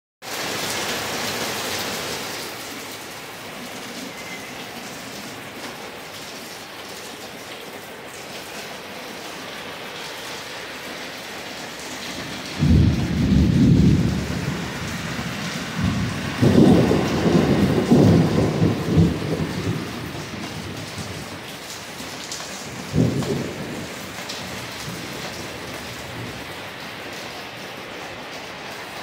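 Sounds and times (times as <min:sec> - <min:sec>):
steady rain hissing: 0:00.2 - 0:29.0
thunder rumbling: 0:11.4 - 0:27.2.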